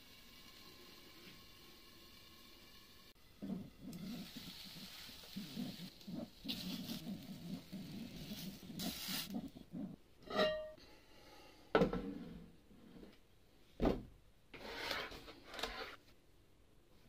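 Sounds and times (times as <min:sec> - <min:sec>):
metal tongs scraping in pan: 0:10.2 - 0:10.8.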